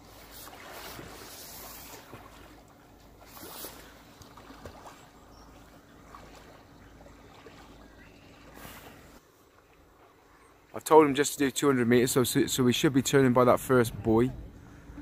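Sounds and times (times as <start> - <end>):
swimmer splashing water: 0.0 - 15.0
low outdoor rumble: 11.8 - 15.0.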